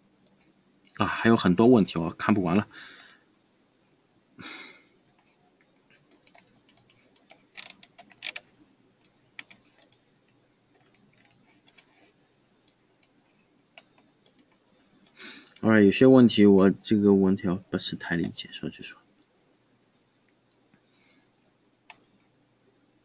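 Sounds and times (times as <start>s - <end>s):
person breathing: 2.7s - 3.4s, 4.4s - 5.0s, 15.1s - 15.6s, 20.8s - 21.4s
computer mouse and keyboard clicking: 5.1s - 15.7s, 18.2s - 18.4s.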